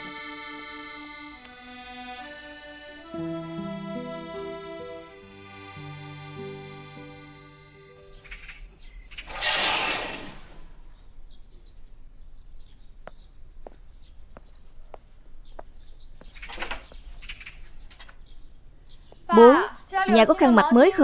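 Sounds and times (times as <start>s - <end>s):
birds chirping: 0.0s - 21.0s
curtains swishing open: 9.3s - 10.8s.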